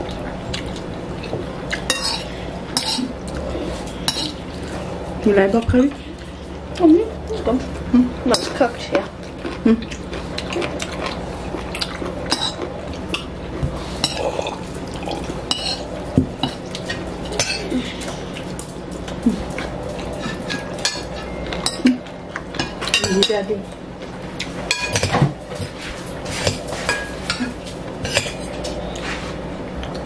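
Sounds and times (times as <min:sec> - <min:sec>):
steady low hum: 0:00.0 - 0:30.0
cutlery clinking on ceramic bowls: 0:01.7 - 0:03.1, 0:04.1 - 0:04.4, 0:15.5 - 0:18.2, 0:19.5 - 0:23.6, 0:24.7 - 0:25.7, 0:26.3 - 0:28.8.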